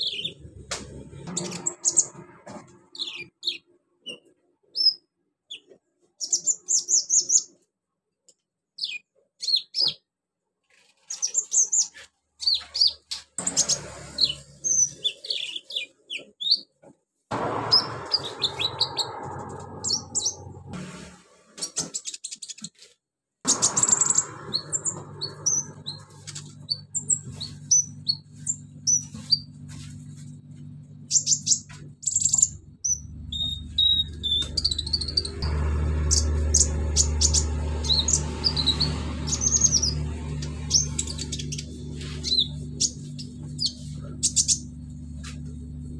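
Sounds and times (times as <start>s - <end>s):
bird chirping and twittering: 0.0s - 0.6s, 1.2s - 7.5s, 11.1s - 16.6s, 17.7s - 20.6s, 23.5s - 29.5s, 31.1s - 44.7s.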